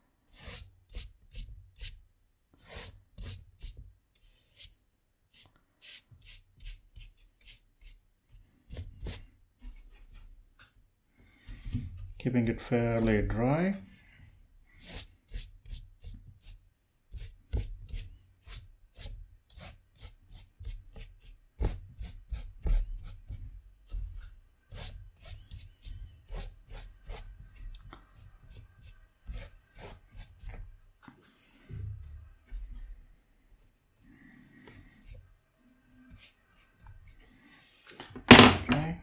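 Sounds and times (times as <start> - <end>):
brush scratching on paper: 0.3 - 2.0, 2.6 - 10.4, 14.3 - 30.7, 34.3 - 37.5.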